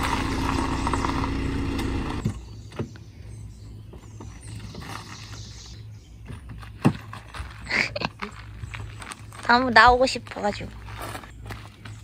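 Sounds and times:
car engine idling: 0.0 - 2.4.

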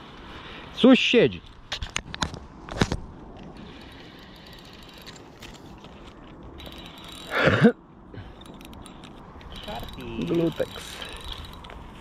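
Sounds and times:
fishing reel gears whirring: 3.6 - 7.6, 8.2 - 12.0.

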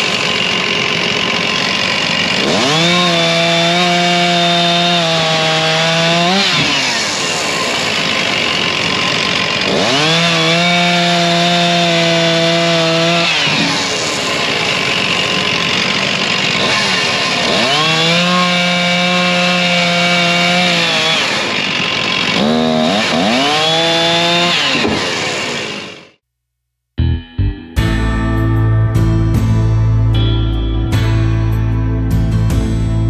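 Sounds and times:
chainsaw cutting log: 0.0 - 26.2.

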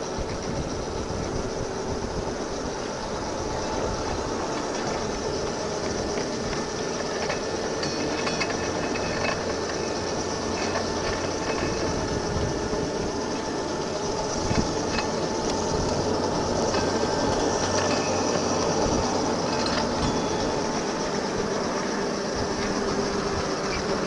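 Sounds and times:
motor hum: 0.0 - 24.0
steel wheels rumbling on rails: 0.0 - 24.0.

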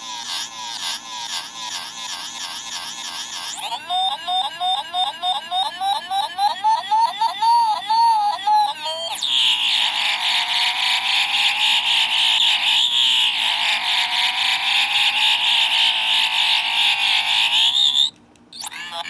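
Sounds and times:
pulsing electronic buzz: 9.0 - 19.0.

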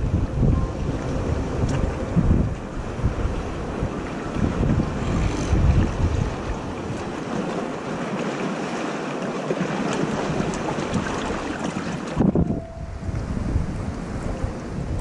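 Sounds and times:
wind buffeting microphone: 0.0 - 8.4, 9.5 - 15.0
sea water washing on rocks: 1.5 - 12.4.

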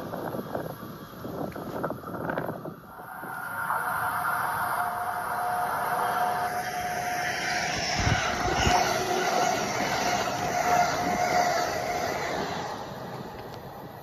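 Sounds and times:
toy train motor whine: 3.7 - 13.7.

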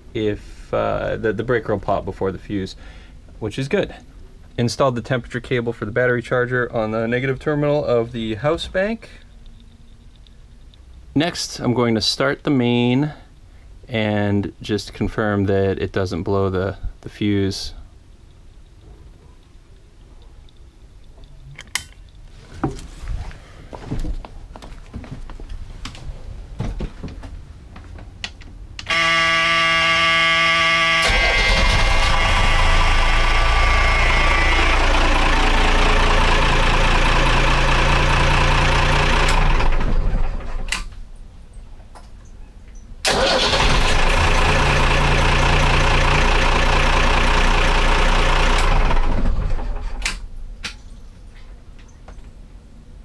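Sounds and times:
faint knocks of moving about: 21.0 - 28.6
engine alarm buzzer: 28.9 - 36.5
diesel engine starting and idling: 28.9 - 40.9, 43.0 - 50.2.

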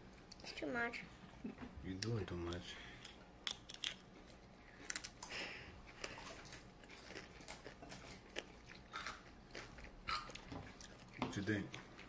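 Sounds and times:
chewing and crunching chips: 3.4 - 12.0.

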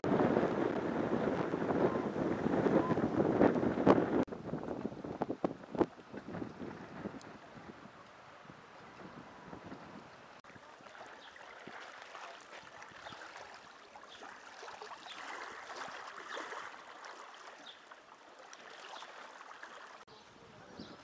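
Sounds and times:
small waves lapping at shore: 5.1 - 20.1.

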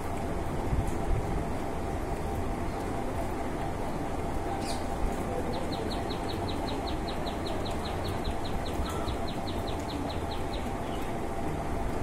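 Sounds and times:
bird chirping: 4.5 - 11.2.

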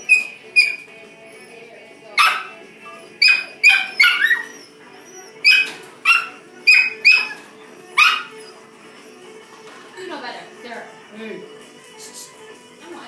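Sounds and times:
puppies yipping: 0.0 - 8.7.

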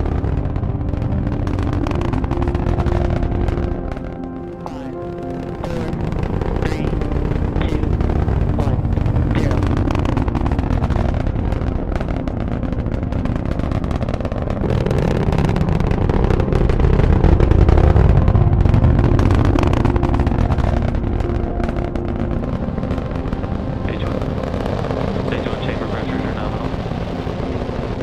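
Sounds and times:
rocket engine rumble: 0.0 - 28.0.

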